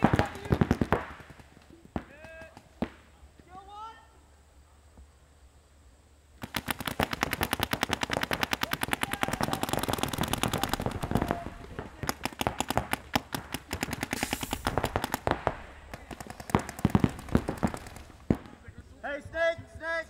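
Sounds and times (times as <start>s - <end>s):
paintball markers firing: 0.0s - 3.2s, 6.4s - 18.6s.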